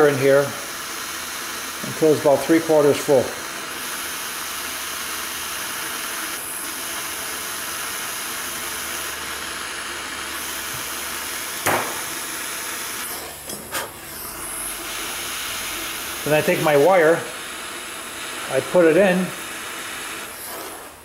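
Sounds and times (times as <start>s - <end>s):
torch flame hissing: 0.0s - 21.0s.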